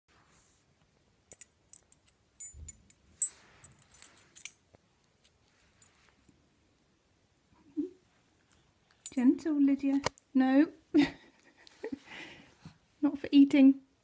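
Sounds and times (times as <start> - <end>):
metal collar tag jingling: 1.3 - 4.6, 9.0 - 9.4.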